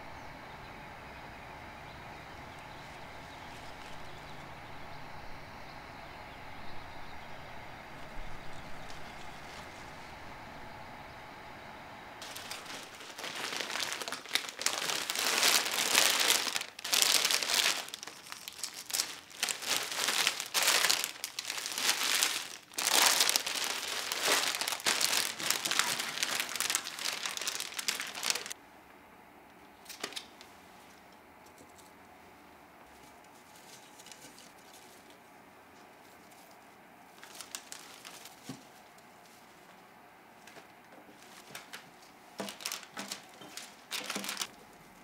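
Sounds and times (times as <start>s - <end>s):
plastic wrapping crinkling: 8.5s - 10.1s, 12.2s - 28.6s, 33.0s - 35.2s, 36.2s - 39.0s, 40.4s - 44.6s.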